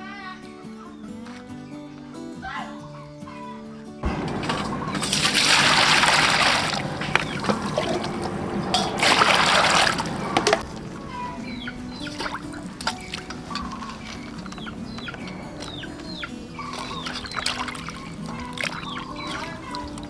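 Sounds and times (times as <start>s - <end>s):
music: 0.0s - 7.9s, 10.4s - 20.0s
water splashing in a pot: 4.1s - 10.9s, 16.6s - 20.0s.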